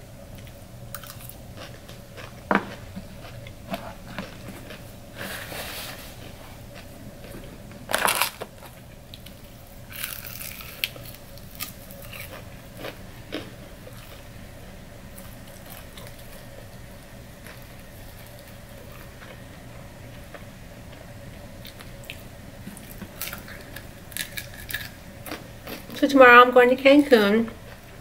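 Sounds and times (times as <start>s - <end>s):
quiet chewing: 0.3s - 7.6s, 8.6s - 14.3s, 15.1s - 16.8s
crispy chicken crackling: 0.4s - 26.0s
crunching bites: 7.9s - 14.2s, 22.9s - 25.9s.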